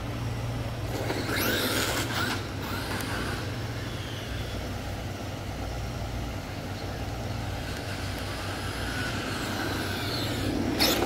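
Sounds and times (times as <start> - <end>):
electric motor whining: 0.8 - 4.4, 7.6 - 11.0.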